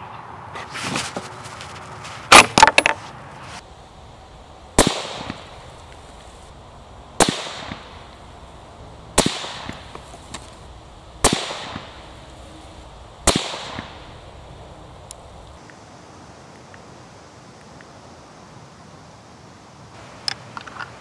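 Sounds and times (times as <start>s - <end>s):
rifle shots: 4.8s - 5.6s, 7.2s - 8.1s, 9.1s - 10.0s, 11.2s - 12.3s, 13.2s - 14.2s.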